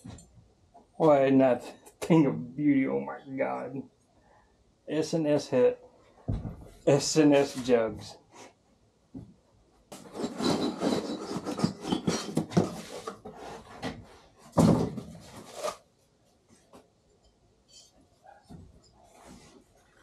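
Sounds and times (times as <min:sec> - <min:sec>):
packaging rustling and scraping: 0:15.0 - 0:15.9.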